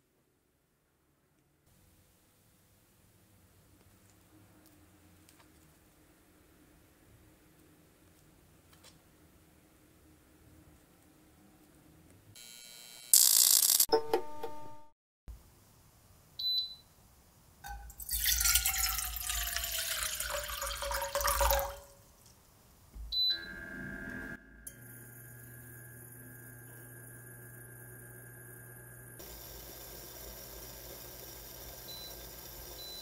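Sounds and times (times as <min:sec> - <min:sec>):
water pouring into saucepan: 0:17.9 - 0:21.9
induction hob humming: 0:23.0 - 0:33.0.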